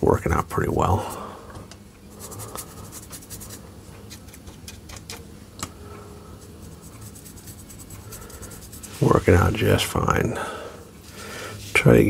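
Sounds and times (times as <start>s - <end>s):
paintbrush brushing on wood: 2.1s - 4.9s, 6.3s - 9.9s.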